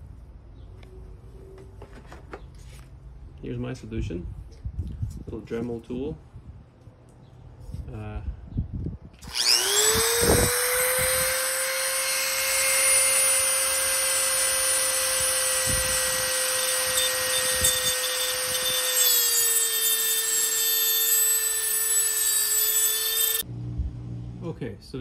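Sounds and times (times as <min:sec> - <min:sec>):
rotary tool grinding metal: 0:09.2 - 0:23.5.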